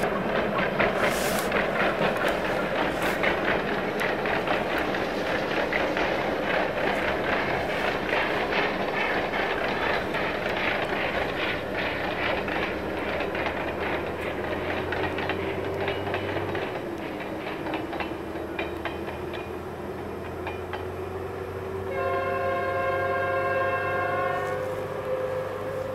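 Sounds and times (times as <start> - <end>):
train wheels clicking over rail joints: 0.0 - 25.9
long horn-like tone: 21.7 - 25.9.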